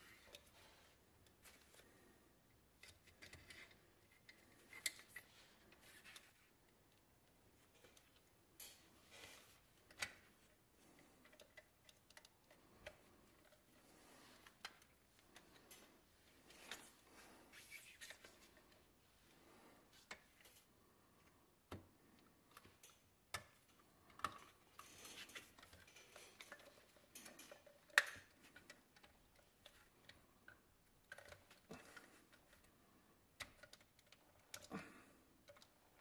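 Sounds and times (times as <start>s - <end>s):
small metal toy parts clicking: 24.1s - 32.7s.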